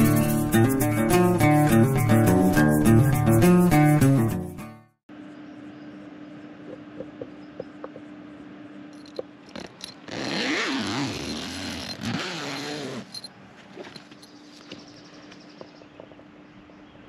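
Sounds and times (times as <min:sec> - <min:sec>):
zipper pulled open: 0:09.5 - 0:14.0.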